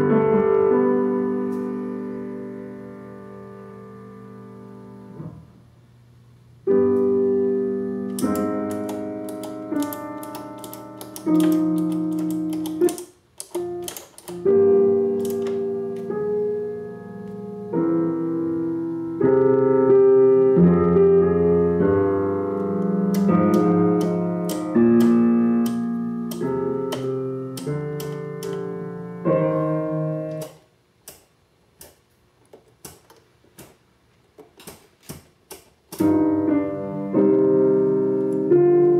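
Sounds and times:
piano music: 0.0 - 5.6, 6.6 - 30.6, 36.0 - 38.9
selector switch clicking: 8.1 - 14.5, 23.1 - 28.6, 30.4 - 32.0.

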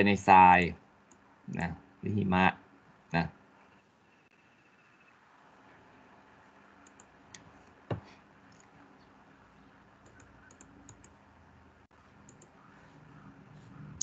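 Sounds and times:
clicking and tapping at computer: 6.8 - 8.7, 10.0 - 11.2, 12.2 - 12.6.

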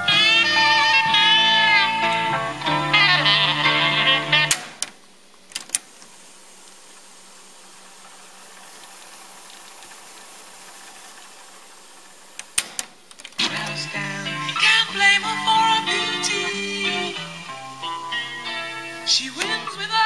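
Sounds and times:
music playback from cassette: 0.0 - 7.1, 8.0 - 20.0
tape winding whir: 13.4 - 20.0.

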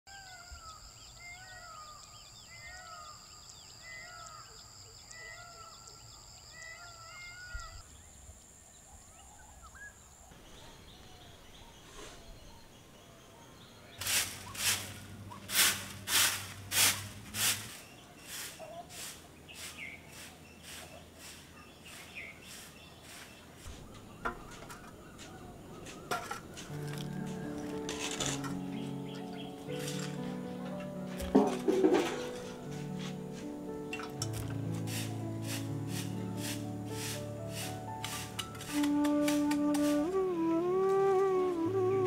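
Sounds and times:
bird calling: 0.1 - 8.0, 17.6 - 30.4.

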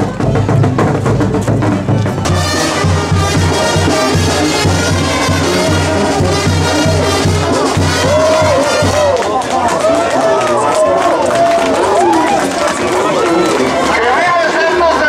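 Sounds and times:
music with brass and steady beat: 0.0 - 9.5.

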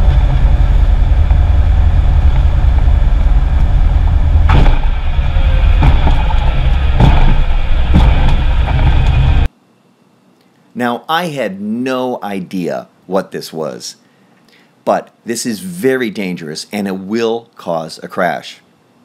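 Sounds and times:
light plane engine rumble: 0.0 - 9.5
plane bouncing on runway thumps: 0.0 - 9.5.

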